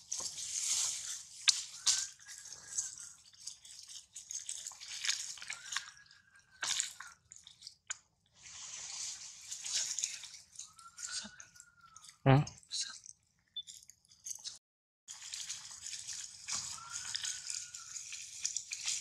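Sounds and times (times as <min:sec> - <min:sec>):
baby monkey sucking: 0:00.1 - 0:08.0, 0:15.1 - 0:19.0.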